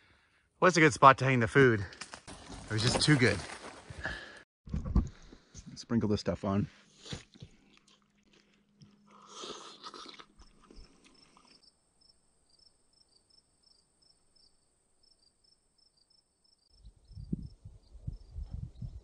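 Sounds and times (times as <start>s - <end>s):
rustling crunch: 1.8s - 4.4s
crickets chirping: 10.4s - 18.4s.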